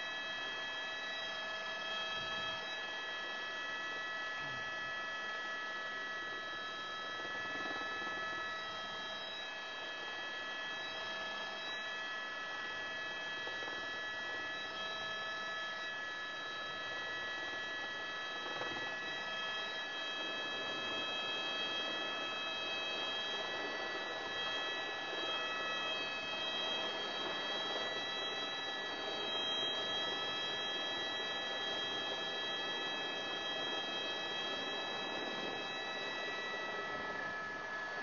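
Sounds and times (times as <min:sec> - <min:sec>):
helicopter whine: 0:06.2 - 0:10.0, 0:16.6 - 0:38.0.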